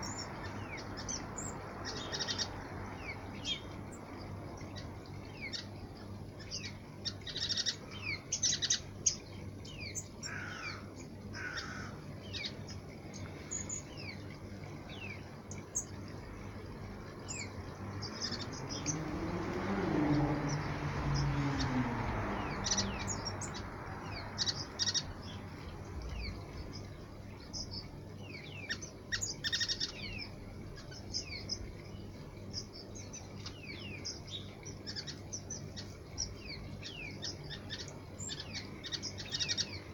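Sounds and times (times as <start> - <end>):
birds chirping high: 0.0 - 39.9
passing engine: 16.1 - 28.2.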